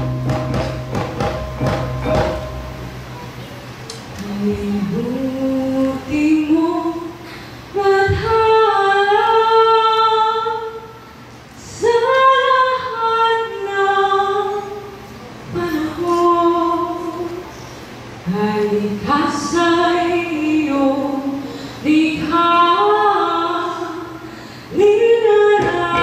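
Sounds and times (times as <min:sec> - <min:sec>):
woman singing unaccompanied: 0:04.1 - 0:11.0, 0:11.6 - 0:17.5, 0:18.2 - 0:26.0.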